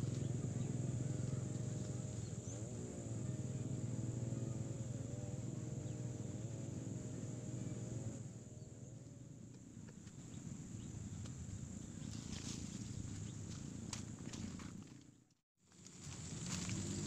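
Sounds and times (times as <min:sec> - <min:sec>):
high insect drone: 0:00.0 - 0:13.2
low wavering hum: 0:00.0 - 0:13.9
rustles of moving through brush: 0:09.9 - 0:17.0.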